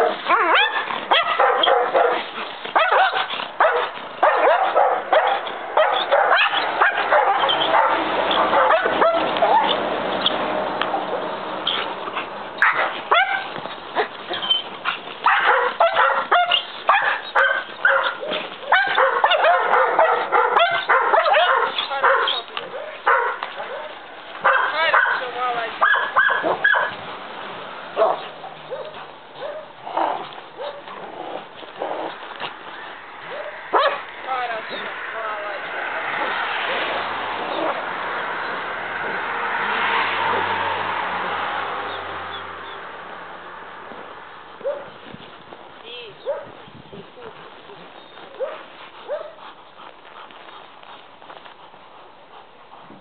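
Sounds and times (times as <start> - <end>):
dog barking and yelping: 0.0 - 25.2, 25.8 - 27.0, 27.9 - 32.2, 33.2 - 34.1, 35.8 - 40.6, 44.6 - 45.0, 46.2 - 46.6, 48.3 - 49.5
dog whining: 5.3 - 9.8, 13.1 - 14.7.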